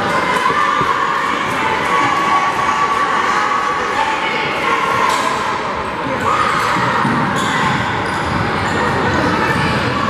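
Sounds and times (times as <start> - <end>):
sneaker squeaks: 6.5 - 9.7.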